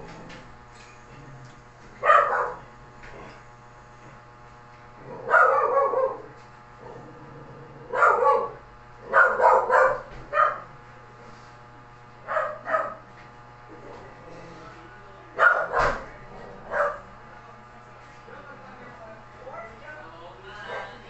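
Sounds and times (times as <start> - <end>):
dog barking: 2.0 - 2.7, 5.1 - 6.3, 7.9 - 10.7, 12.2 - 13.0, 15.4 - 17.1, 20.7 - 21.0.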